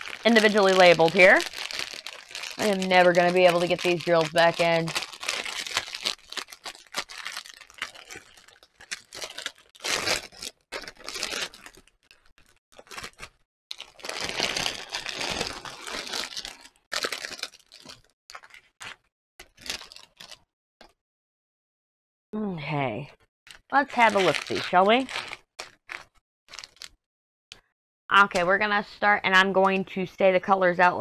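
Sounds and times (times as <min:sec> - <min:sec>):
plastic bags crinkling: 0:00.0 - 0:20.4, 0:23.8 - 0:27.0.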